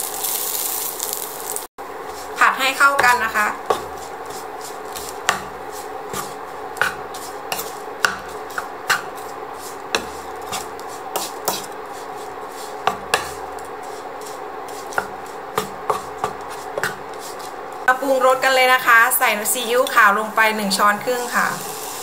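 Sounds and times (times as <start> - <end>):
wooden spatula scraping frying pan: 1.9 - 17.9.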